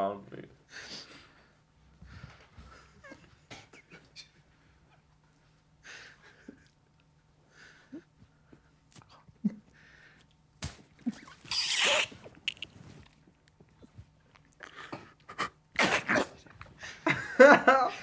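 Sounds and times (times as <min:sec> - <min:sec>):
sharp slap: 0:10.6 - 0:10.9
group stifling laughter: 0:16.8 - 0:18.0.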